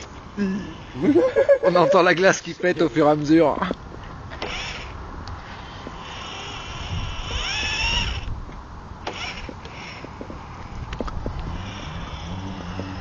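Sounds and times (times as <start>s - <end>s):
electric motor and gears whining: 4.3s - 5.0s, 5.6s - 13.0s.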